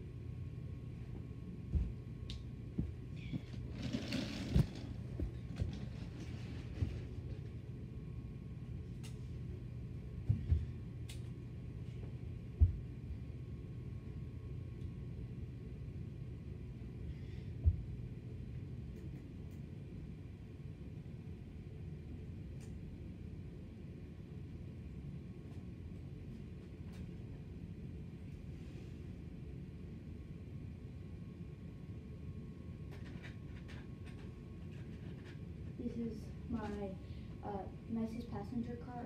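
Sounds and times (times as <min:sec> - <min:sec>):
low hum: 0:00.0 - 0:39.0
rustling scrape: 0:03.6 - 0:05.0, 0:05.7 - 0:07.2.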